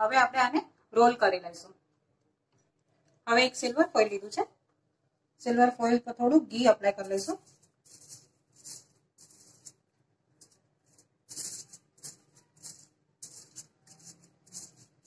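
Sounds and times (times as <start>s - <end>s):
brush swishing on crinkling foil: 7.0s - 15.0s.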